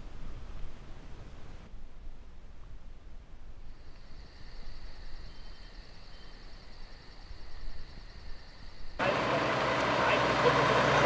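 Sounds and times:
insects buzzing and pulsing: 3.6s - 11.0s.

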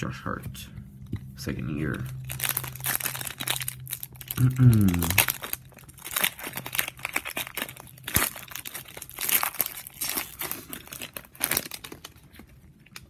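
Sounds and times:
foil wrapper tearing and crinkling: 2.0s - 13.0s.

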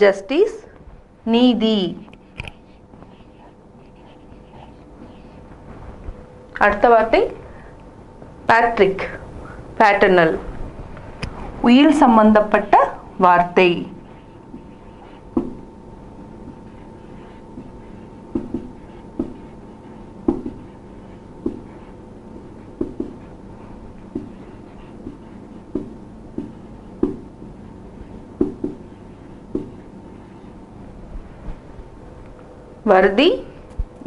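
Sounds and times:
faint steady hum: 0.0s - 34.0s
marker writing on whiteboard: 2.4s - 5.5s, 12.5s - 31.4s.

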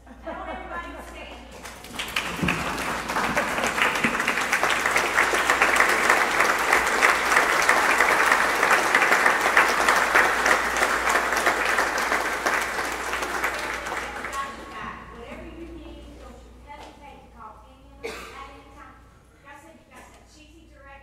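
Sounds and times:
congregation applauding: 1.2s - 15.2s.

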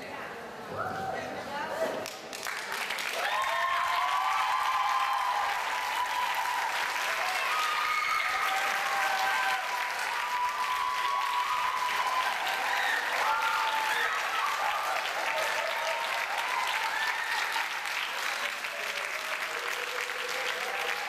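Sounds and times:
audience clapping: 2.0s - 21.0s
voices over applause: 2.0s - 21.0s.

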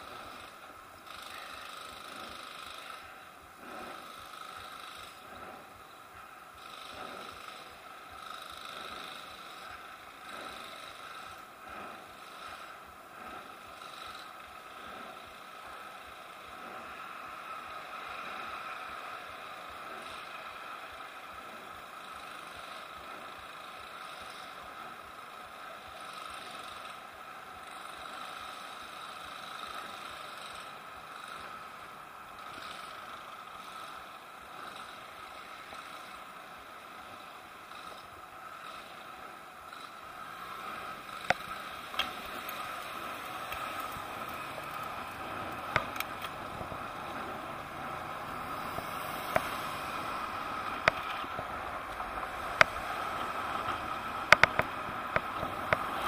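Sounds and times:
freeway traffic noise: 0.0s - 56.0s
sharp clicks: 41.1s - 47.7s, 48.7s - 56.0s.

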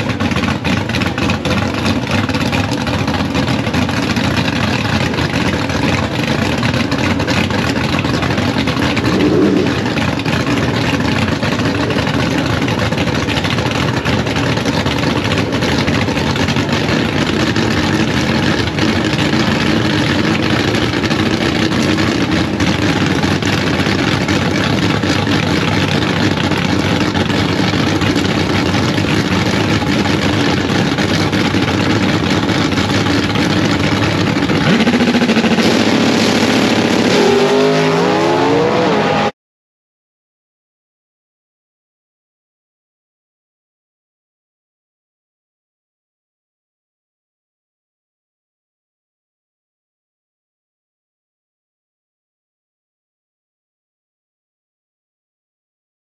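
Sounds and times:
drag racing engines running: 0.0s - 39.3s
engine revving: 8.2s - 10.8s, 32.6s - 39.4s.

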